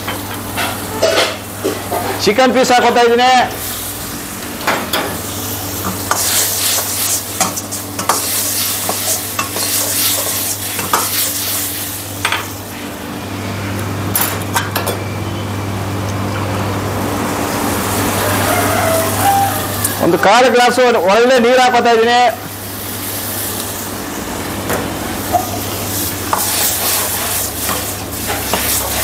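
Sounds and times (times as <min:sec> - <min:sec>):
chicken sizzling in a wok: 0:00.0 - 0:02.3, 0:03.4 - 0:13.6, 0:17.0 - 0:20.1, 0:22.5 - 0:29.0
ladle scraping a pan: 0:26.3 - 0:29.0.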